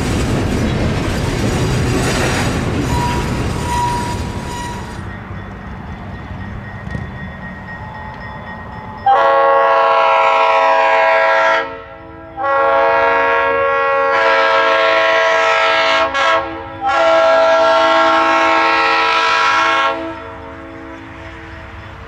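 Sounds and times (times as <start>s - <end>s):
locomotive air horn blasts: 9.1s - 21.8s.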